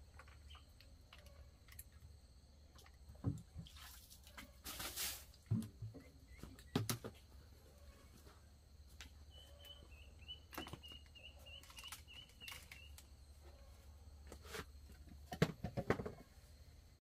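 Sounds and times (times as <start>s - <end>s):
bird chirping: 0.2s - 1.4s, 5.9s - 6.9s, 9.0s - 13.6s.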